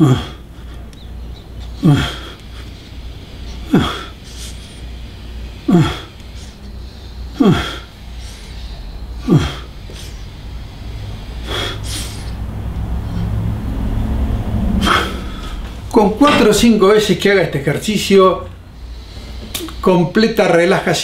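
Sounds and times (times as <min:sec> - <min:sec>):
man's strained vocal outbursts: 0:00.0 - 0:00.5, 0:01.8 - 0:02.4, 0:03.5 - 0:04.6, 0:05.6 - 0:06.5, 0:07.3 - 0:08.0, 0:09.2 - 0:10.1.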